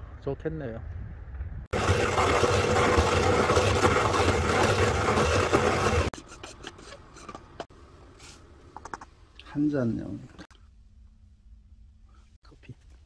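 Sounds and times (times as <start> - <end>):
coffee grinder grinding beans: 1.7 - 6.2.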